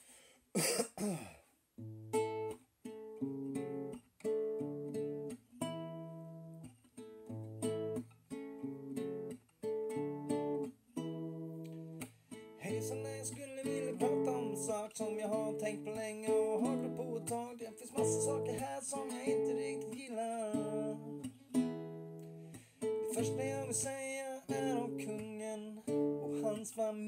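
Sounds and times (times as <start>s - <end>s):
classical guitar strumming chords: 1.8s - 27.0s
man singing: 12.6s - 21.3s, 23.0s - 27.0s.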